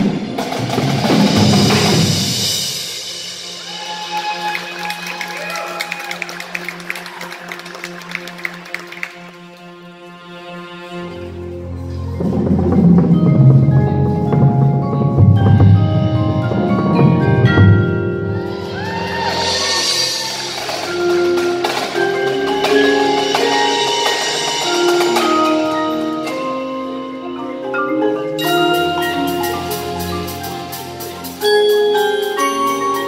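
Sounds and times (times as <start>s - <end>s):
marimbas and xylophone melody: 11.1s - 33.0s.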